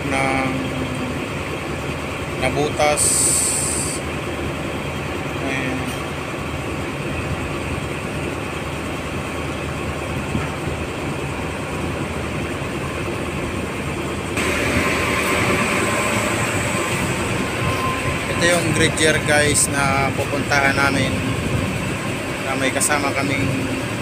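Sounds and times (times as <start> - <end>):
boat engine drone: 0.0 - 24.0
wind: 0.0 - 24.0
loud hiss: 3.0 - 4.0, 14.4 - 19.2
water noise: 10.2 - 20.5.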